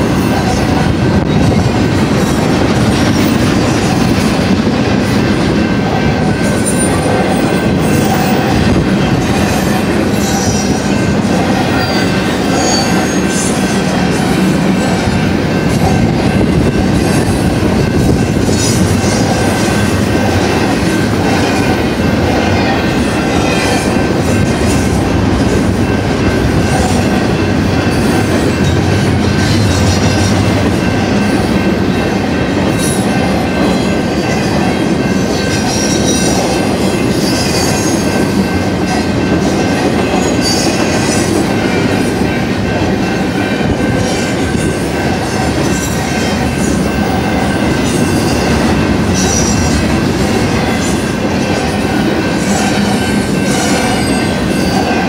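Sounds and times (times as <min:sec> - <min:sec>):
train wheels rumbling on rail: 0:00.0 - 0:55.0
high wheel squeals: 0:11.7 - 0:13.9, 0:46.6 - 0:51.0.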